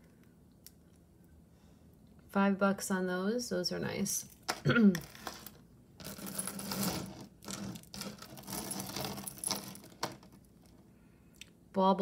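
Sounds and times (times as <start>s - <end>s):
metal jewelry clinking: 5.0s - 10.4s.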